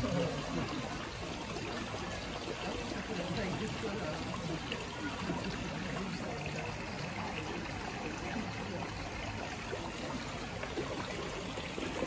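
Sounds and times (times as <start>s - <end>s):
water trickling in aquarium: 0.0s - 12.0s.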